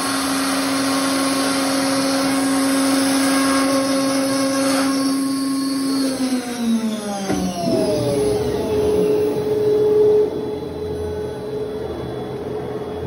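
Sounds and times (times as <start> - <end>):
cnc router spindle spinning down: 0.0 - 13.0
high machine whine: 0.0 - 13.0
low steady machine hum: 7.3 - 13.0.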